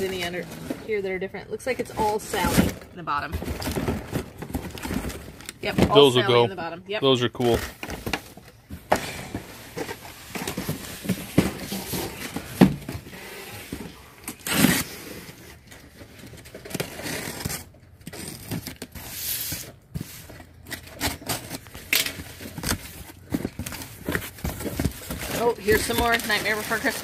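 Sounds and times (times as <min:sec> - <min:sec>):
packages being handled: 0:00.0 - 0:06.5, 0:07.2 - 0:27.0
knife slicing packing tape: 0:14.4 - 0:15.1.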